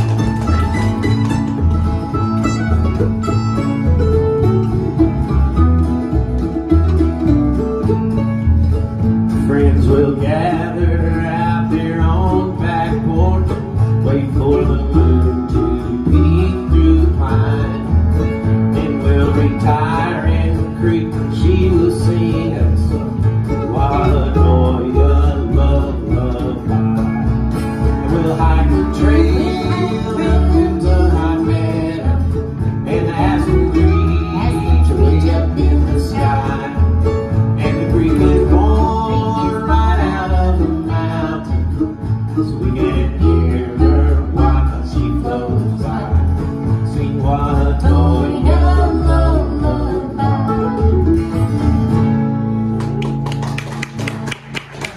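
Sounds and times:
mandolin and acoustic guitars: 0:00.0 - 0:54.9
upright bass notes: 0:00.0 - 0:54.9
person singing: 0:09.4 - 0:17.9, 0:23.6 - 0:26.8, 0:28.0 - 0:37.0, 0:37.6 - 0:41.9, 0:42.5 - 0:51.1.

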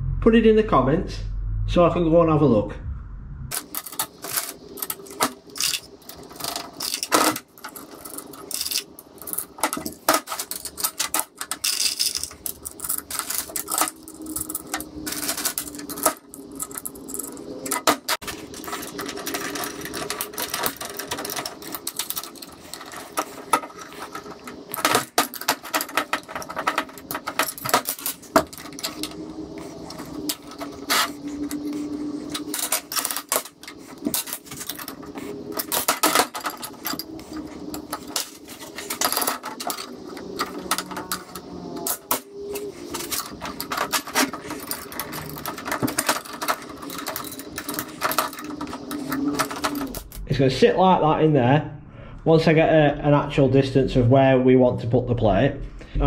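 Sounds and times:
metal pieces clinking and clattering: 0:03.5 - 0:50.2.

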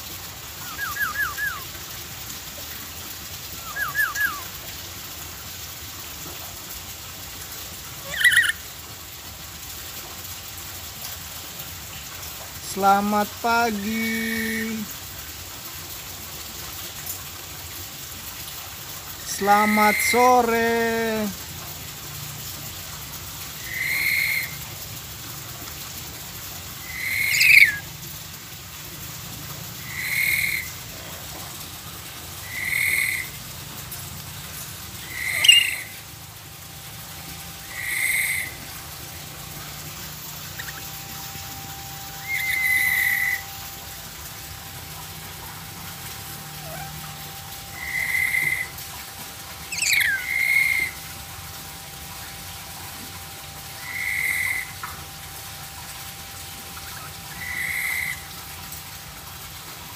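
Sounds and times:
bird giving whistled calls: 0:00.6 - 0:01.6, 0:03.6 - 0:04.5, 0:08.1 - 0:08.6, 0:26.9 - 0:27.8, 0:35.1 - 0:36.0, 0:42.2 - 0:43.5, 0:49.7 - 0:51.0.

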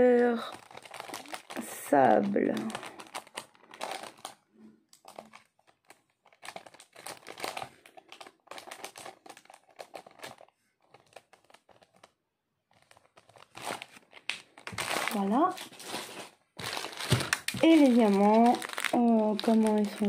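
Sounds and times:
plastic packaging crinkling: 0:00.0 - 0:20.0.

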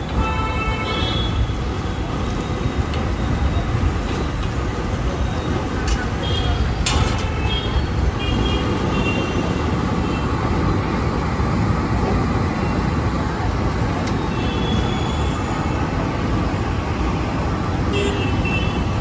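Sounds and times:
street traffic: 0:00.0 - 0:19.0.

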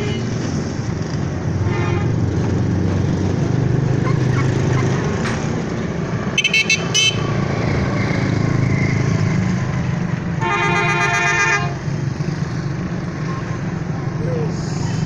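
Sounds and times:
road traffic rumble: 0:00.0 - 0:15.0
vehicle horn toot: 0:06.4 - 0:07.3, 0:10.4 - 0:11.8.

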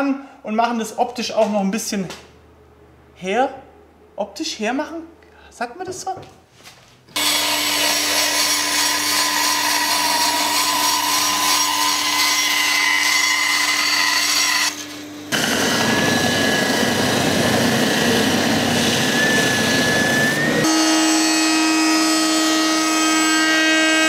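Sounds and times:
band saw cutting plywood: 0:07.2 - 0:24.0
belt sander whine: 0:07.2 - 0:24.0.

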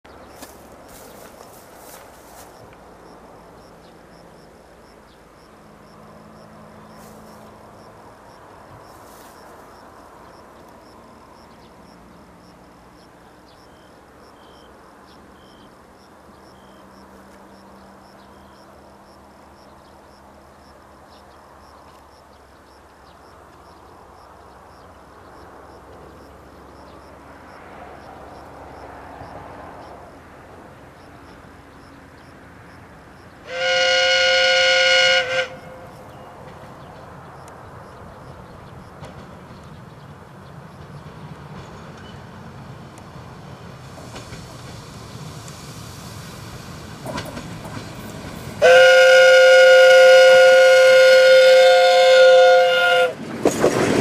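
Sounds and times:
insects chirping: 0:00.1 - 0:48.6
distant diesel train engine hum: 0:00.1 - 0:54.0.

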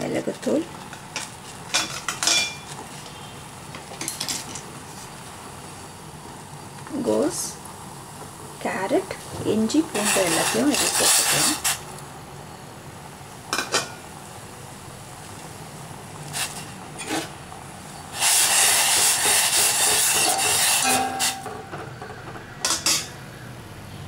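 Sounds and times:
loud hiss: 0:08.8 - 0:11.9, 0:16.2 - 0:21.5.

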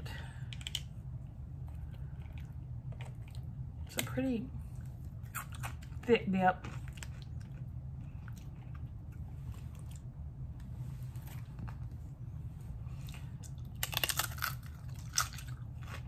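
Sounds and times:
low steady hum: 0:00.0 - 0:16.0
tortilla chip crunching: 0:13.1 - 0:16.0.

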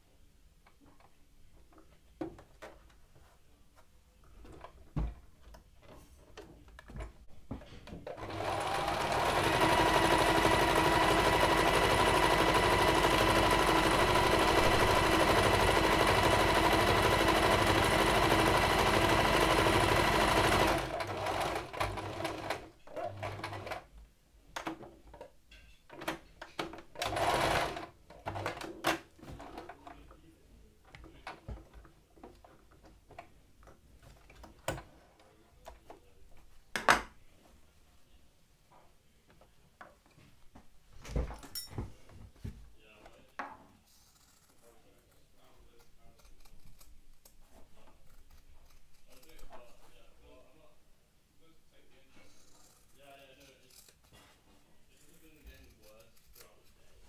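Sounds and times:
sewing machine stitching: 0:08.1 - 0:23.9, 0:27.0 - 0:28.8.

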